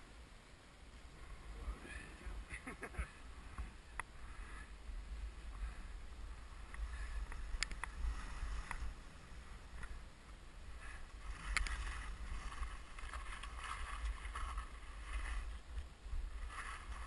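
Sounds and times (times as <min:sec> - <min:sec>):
wind rumble on microphone: 0:00.0 - 0:17.0
skis swishing through snow: 0:05.4 - 0:17.0.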